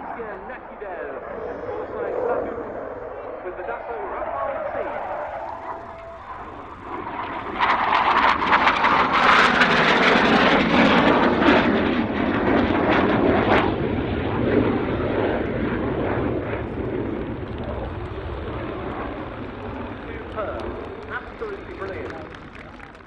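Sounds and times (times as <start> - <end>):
jet engine roar: 0.0 - 23.0.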